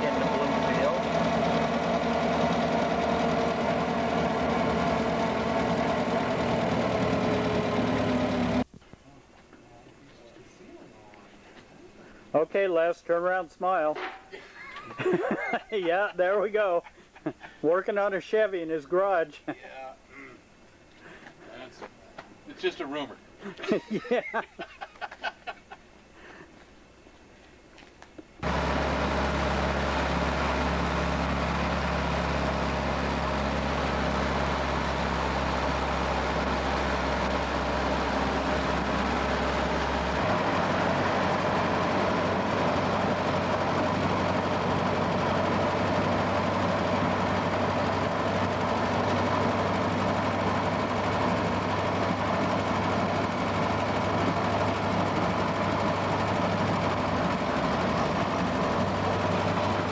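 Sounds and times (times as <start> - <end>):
car engine drone: 0.0 - 8.7, 28.4 - 59.9.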